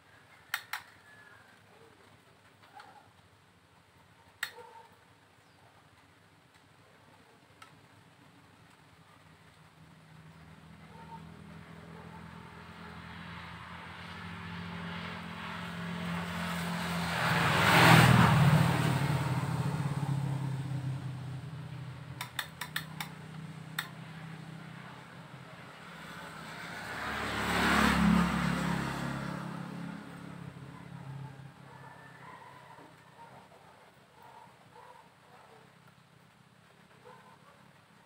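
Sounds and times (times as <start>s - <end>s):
motor vehicles passing by: 0.0s - 5.6s, 7.4s - 38.0s
light clicks: 22.2s - 24.0s.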